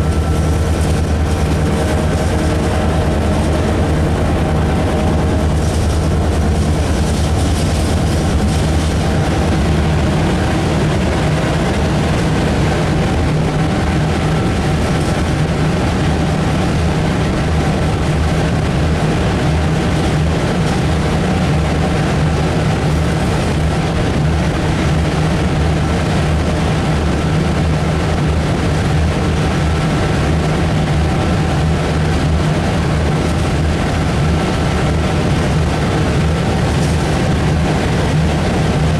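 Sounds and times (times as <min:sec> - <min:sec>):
locomotive engine humming: 0:00.0 - 0:38.9.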